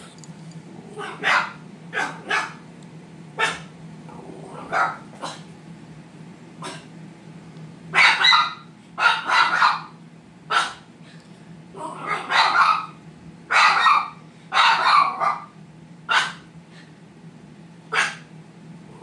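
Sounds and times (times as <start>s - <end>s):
dog barking sharply: 1.0s - 2.6s, 3.4s - 3.7s, 4.7s - 5.5s, 6.6s - 6.9s, 7.9s - 9.9s, 10.5s - 10.8s, 12.1s - 15.5s, 16.1s - 16.5s, 17.9s - 18.3s.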